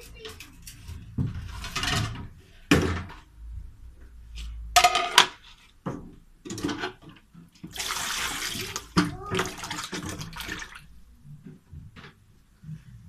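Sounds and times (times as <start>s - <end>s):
plastic basins clattering: 0.0s - 3.4s, 4.7s - 12.3s
water pouring: 7.6s - 11.0s.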